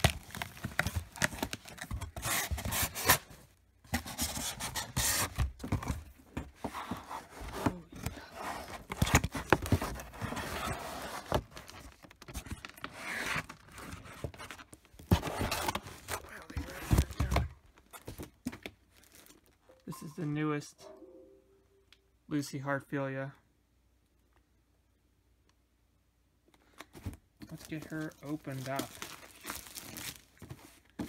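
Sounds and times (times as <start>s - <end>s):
cardboard rubbing and scraping: 3.9s - 5.9s, 6.6s - 11.5s.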